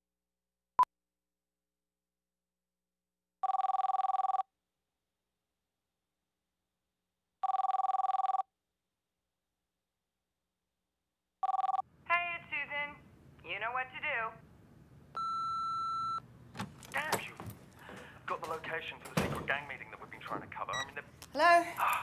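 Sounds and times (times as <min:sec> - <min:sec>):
telephone ringing: 0:03.4 - 0:04.5, 0:07.4 - 0:08.5, 0:11.4 - 0:11.9, 0:15.2 - 0:16.2.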